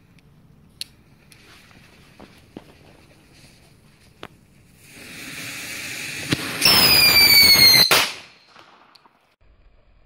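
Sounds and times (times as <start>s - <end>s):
firecracker fuse hissing: 4.6s - 8.3s
firecracker bang: 4.9s - 9.3s
falling screaming whistle: 6.6s - 8.0s.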